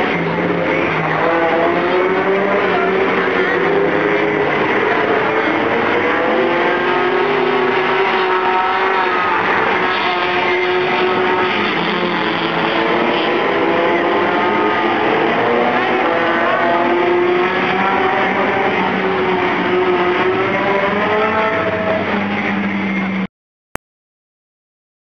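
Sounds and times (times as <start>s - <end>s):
race car engines: 0.0s - 23.3s.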